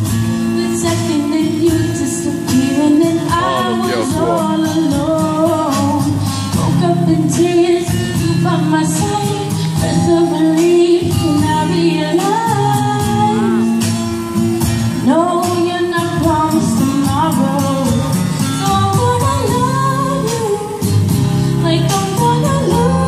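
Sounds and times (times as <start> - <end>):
girl singing into microphone: 0.4 - 13.8, 15.0 - 23.0
backing track through speaker: 3.0 - 7.5.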